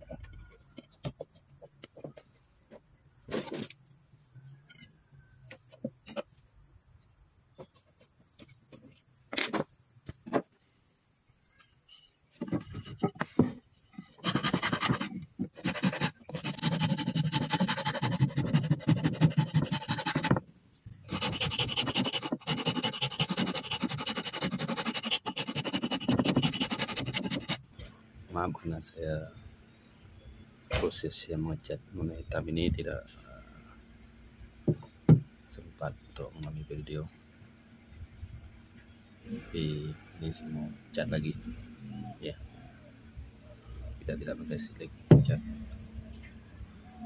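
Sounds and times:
file rasping wood: 14.2s - 20.4s, 21.0s - 27.6s.

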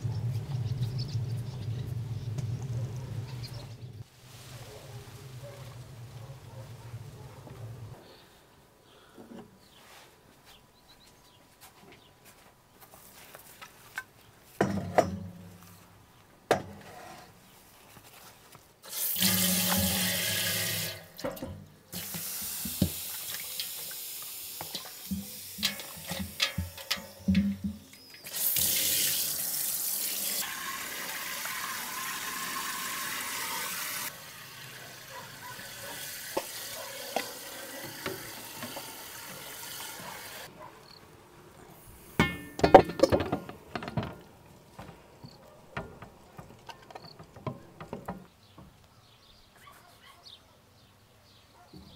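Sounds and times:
hose water spraying into pot: 18.8s - 40.5s.

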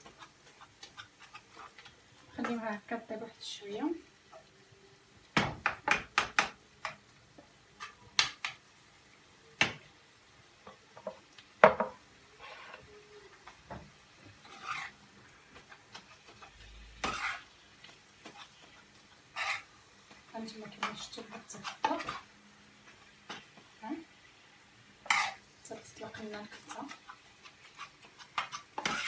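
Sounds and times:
spoon scraping metal pot: 14.4s - 15.0s, 15.9s - 17.5s, 19.3s - 19.7s, 25.0s - 25.4s, 26.5s - 29.0s.

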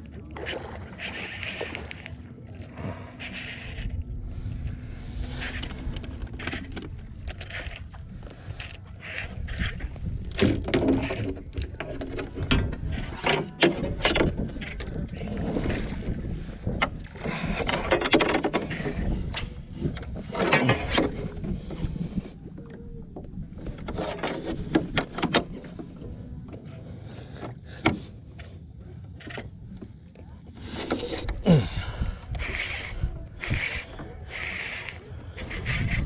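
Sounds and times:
wind rumble on microphone: 0.0s - 36.0s
fishing gear knocking and rattling: 5.4s - 15.1s, 16.7s - 21.6s.

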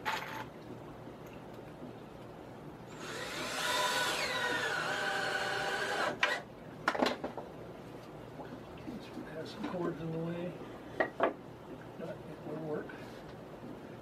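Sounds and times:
cordless drill driving screw: 3.0s - 6.4s.

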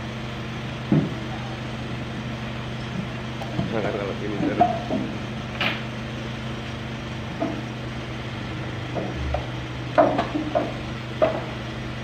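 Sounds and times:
steady low hum: 0.0s - 12.0s
steel ramps knocking and clanking: 0.9s - 1.3s, 3.0s - 5.9s, 7.2s - 11.7s.

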